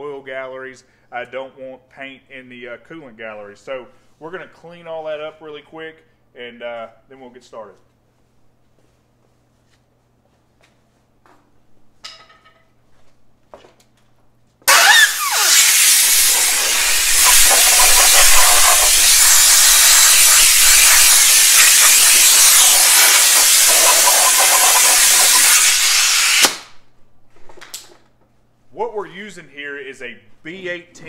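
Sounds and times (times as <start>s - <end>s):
wire wheel scrubbing metal: 14.7s - 26.4s.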